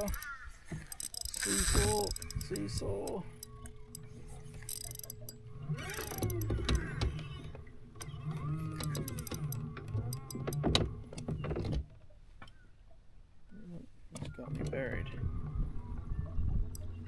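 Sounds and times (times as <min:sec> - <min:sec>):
fishing reel cranking: 0:00.0 - 0:07.2, 0:08.0 - 0:10.6
reel drag clicking: 0:00.0 - 0:07.2, 0:08.0 - 0:10.6
low steady hum: 0:01.4 - 0:11.8.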